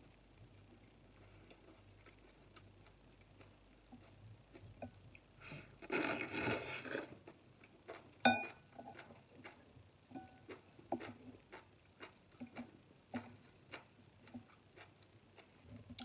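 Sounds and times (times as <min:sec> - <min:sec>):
slurping noodles: 0:05.8 - 0:07.2
utensil clinking ceramic bowl: 0:08.3 - 0:08.6
chewing and mouth clicks: 0:10.5 - 0:16.0.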